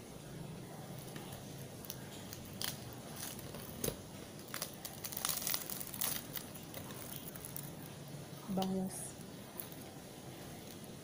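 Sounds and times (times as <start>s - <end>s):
fried fish skin crackling: 0.9s - 8.9s.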